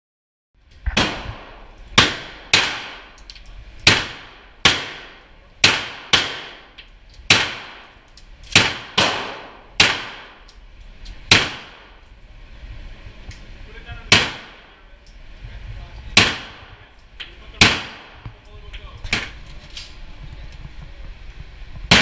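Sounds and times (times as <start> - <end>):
rifle shots echoing indoors: 0.9 - 3.2, 3.8 - 10.5, 11.2 - 12.0, 14.1 - 14.8, 16.2 - 16.9, 17.6 - 18.2.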